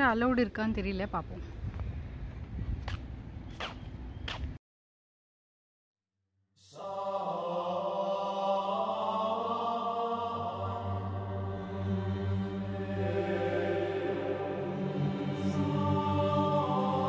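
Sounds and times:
mantra chant music: 6.6s - 17.0s
low steady drone: 6.7s - 17.0s.

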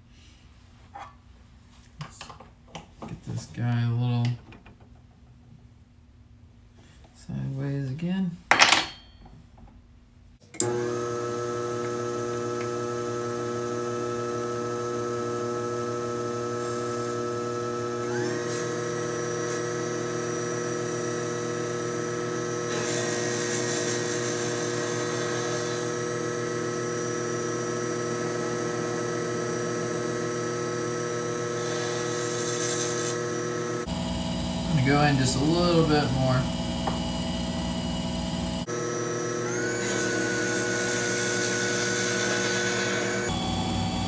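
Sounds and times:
lathe motor whine: 10.6s - 44.0s
lathe tool cutting hiss: 16.3s - 44.0s.

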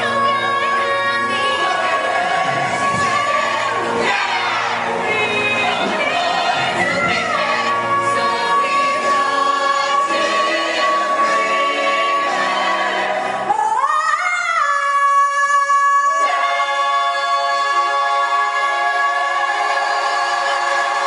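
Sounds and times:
ensemble chorus singing: 0.0s - 13.8s, 16.1s - 21.0s
pit orchestra: 0.0s - 13.9s.

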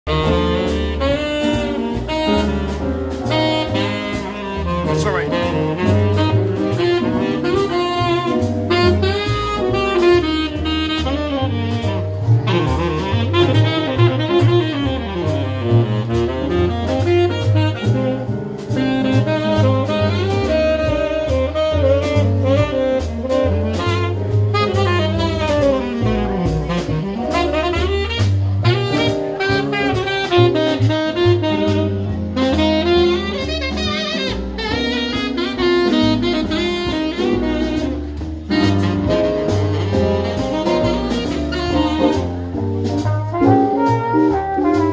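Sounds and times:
drum kit: 0.1s - 44.9s
saxophone melody: 0.1s - 44.9s
upright double bass: 0.1s - 44.9s.

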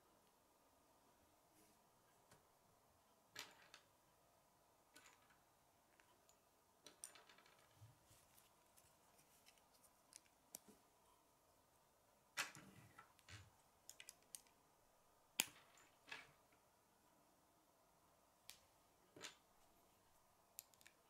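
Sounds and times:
plastic pieces clicking together: 13.9s - 14.6s, 20.6s - 21.0s.

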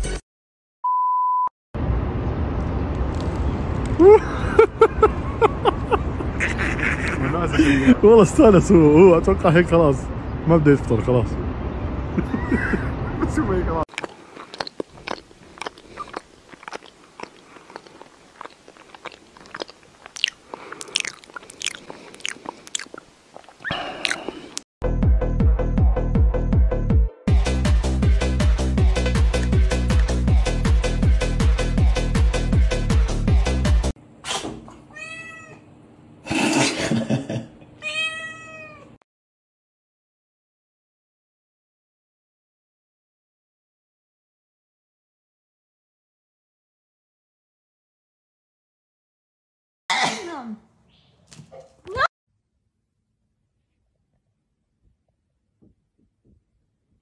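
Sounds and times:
cat meowing: 34.9s - 35.6s, 37.8s - 39.0s.

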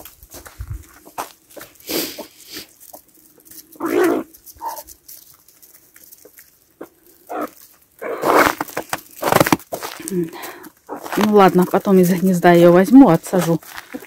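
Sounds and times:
chickens clucking and squawking: 1.0s - 3.1s.

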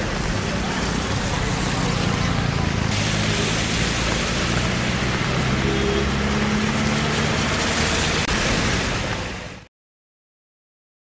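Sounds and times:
engine humming: 0.0s - 9.4s
loud even hiss: 2.8s - 9.6s.

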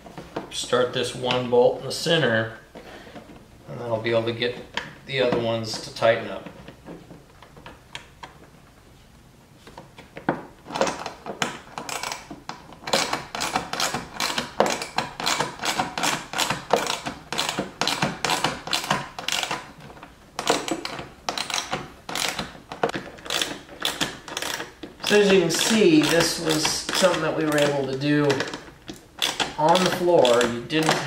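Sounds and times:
hand ratchet clicking: 10.7s - 19.8s, 20.4s - 31.0s.

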